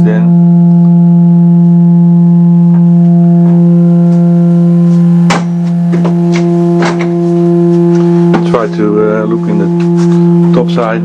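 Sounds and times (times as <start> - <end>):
resonating tube hum: 0.0 - 11.0.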